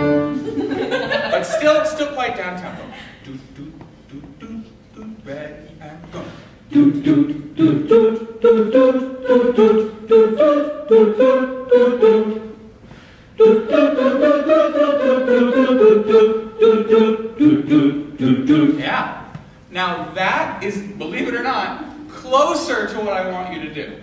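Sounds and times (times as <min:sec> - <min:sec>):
choir singing a cappella: 0:06.2 - 0:12.7, 0:13.4 - 0:19.2.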